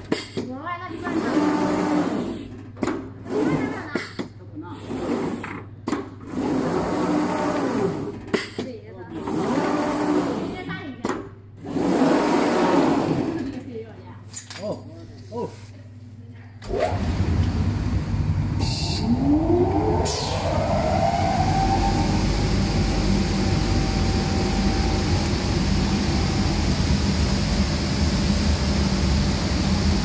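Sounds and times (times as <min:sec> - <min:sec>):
blower fan whining: 0:00.8 - 0:02.5, 0:06.3 - 0:08.3, 0:09.1 - 0:10.8, 0:11.5 - 0:13.7, 0:16.6 - 0:30.0.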